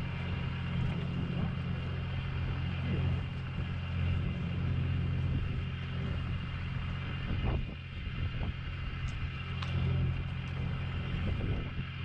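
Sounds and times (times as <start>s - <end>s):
boat engine droning: 0.0s - 12.0s
faint whine: 0.0s - 12.0s.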